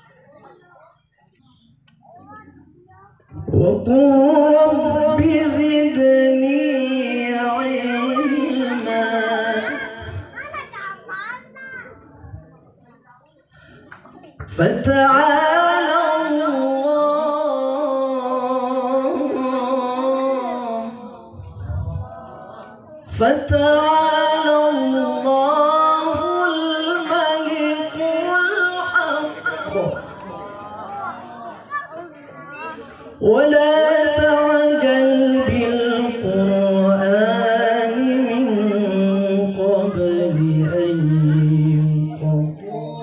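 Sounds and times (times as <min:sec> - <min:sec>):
man reciting melodically through microphone: 0:03.3 - 0:10.4, 0:14.4 - 0:31.2, 0:33.1 - 0:43.0.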